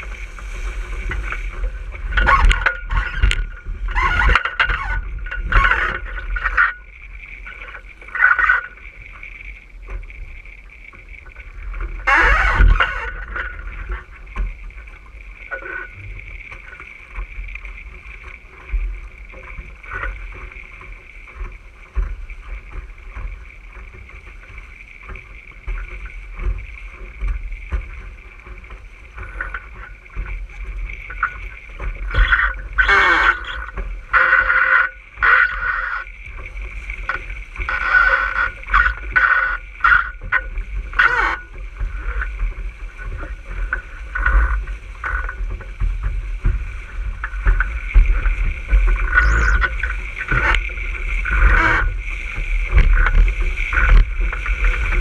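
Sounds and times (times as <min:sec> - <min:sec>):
heavy water splashes: 0:00.0 - 0:55.0
steady high whine: 0:00.0 - 0:55.0
water rushing along a hull: 0:00.0 - 0:55.0
wind buffeting microphone: 0:36.0 - 0:55.0.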